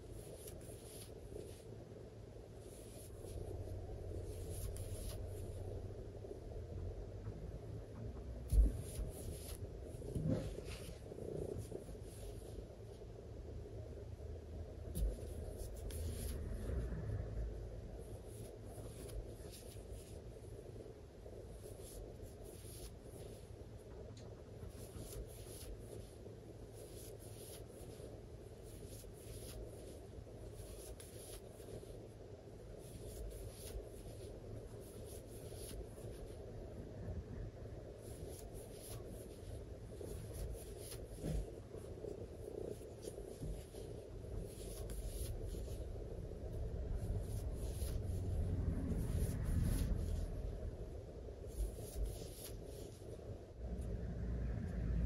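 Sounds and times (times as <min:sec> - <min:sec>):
crochet hook scratching yarn: 0:00.0 - 0:01.8, 0:02.5 - 0:05.9, 0:08.5 - 0:12.8, 0:14.9 - 0:17.2, 0:17.9 - 0:23.6, 0:24.6 - 0:36.5, 0:38.0 - 0:53.8
low room hum: 0:00.0 - 0:55.0
low handling rumble: 0:45.3 - 0:51.5, 0:53.5 - 0:55.0.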